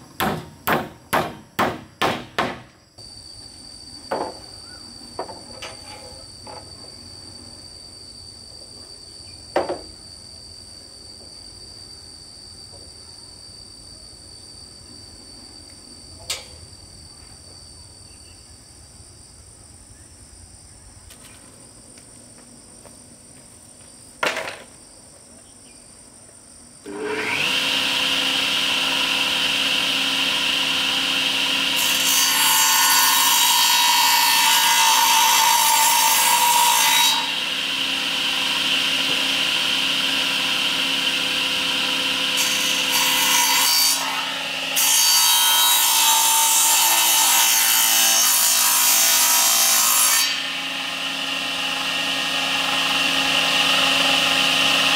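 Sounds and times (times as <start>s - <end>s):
knock: 4.1s - 4.4s, 9.6s - 9.9s
table saw motor humming: 26.9s - 33.5s, 36.8s - 44.8s, 50.2s - 54.9s
saw blade cutting wood: 26.9s - 54.9s.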